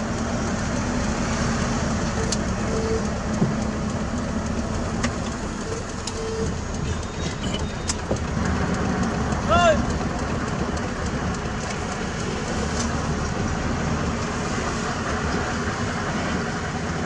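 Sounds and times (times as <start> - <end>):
diesel truck engine running: 0.0 - 17.0
short low beep: 2.2 - 3.1, 5.6 - 8.0.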